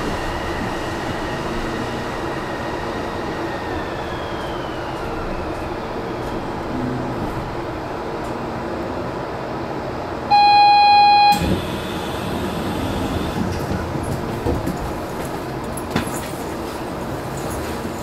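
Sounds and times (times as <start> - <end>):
train equipment running noise: 0.0 - 18.0
electronic warning tone: 10.3 - 12.1.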